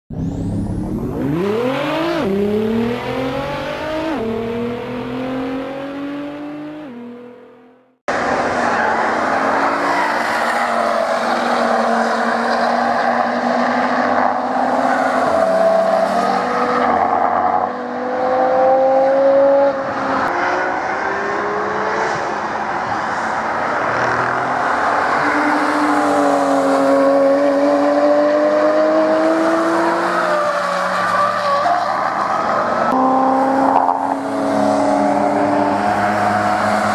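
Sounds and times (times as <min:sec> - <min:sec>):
car engine revving: 0:00.2 - 0:08.0, 0:32.9 - 0:36.9
cars passing accelerating hard: 0:00.9 - 0:07.5, 0:08.1 - 0:36.9.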